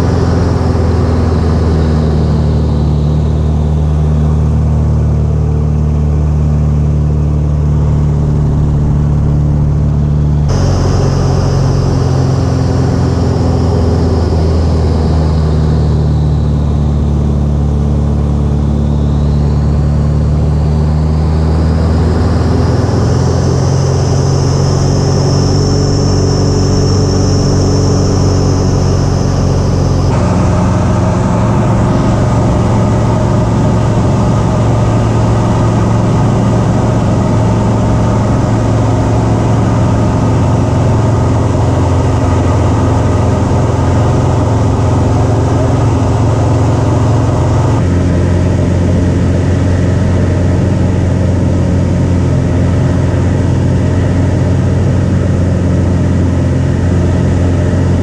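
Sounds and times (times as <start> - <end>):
high whine: 0.0 - 58.0
light aircraft engine and propeller: 0.0 - 58.0
wind rush: 6.2 - 14.6, 24.6 - 52.0.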